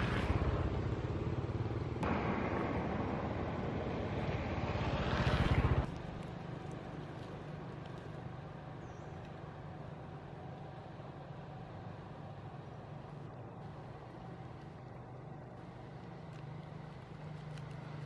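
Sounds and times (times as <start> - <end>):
vehicle engine rumbling: 0.0 - 18.0
steady background hum: 5.8 - 18.0.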